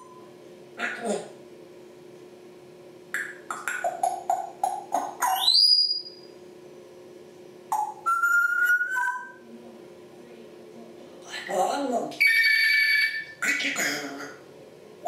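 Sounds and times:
parrot whistling: 0:00.0 - 0:00.3, 0:03.2 - 0:06.3, 0:07.7 - 0:09.4, 0:12.2 - 0:13.7
parrot chirping: 0:03.2 - 0:06.3, 0:07.7 - 0:09.4, 0:12.2 - 0:14.4.

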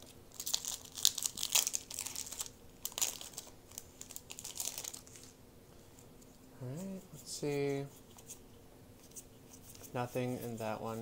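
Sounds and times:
foil pack tearing: 0:00.3 - 0:05.2
foil wrapper crinkling: 0:00.3 - 0:05.4.

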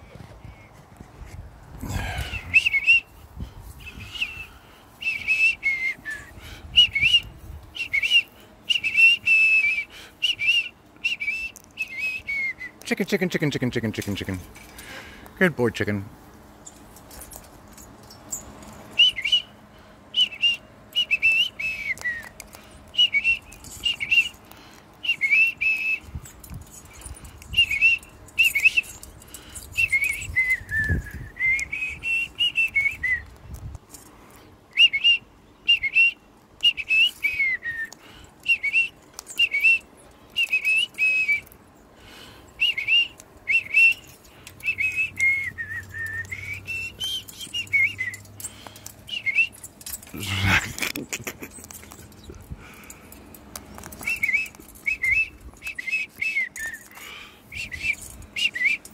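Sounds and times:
person whistling high notes: 0:02.3 - 0:03.1, 0:03.8 - 0:12.8, 0:25.0 - 0:26.1, 0:42.6 - 0:48.3, 0:49.1 - 0:49.6, 0:54.0 - 0:58.9.

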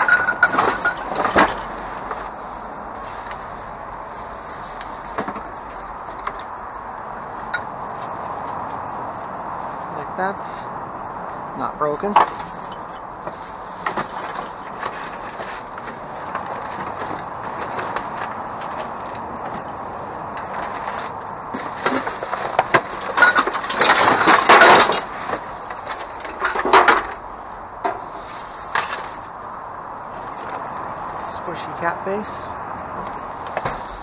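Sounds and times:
objects knocking and clinking: 0:00.0 - 0:01.7, 0:21.6 - 0:27.2
junk clattering and scraping: 0:00.0 - 0:08.9, 0:12.0 - 0:34.0.

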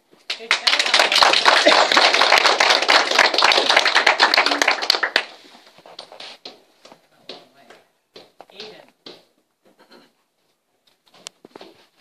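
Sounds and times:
children clapping: 0:00.2 - 0:06.6.

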